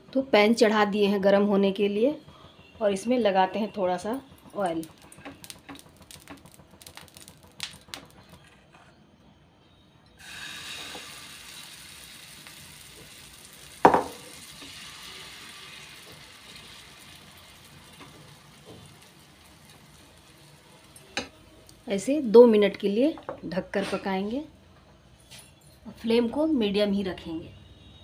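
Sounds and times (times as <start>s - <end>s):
batter sizzling in a pan: 4.6s - 8.3s, 10.2s - 22.3s.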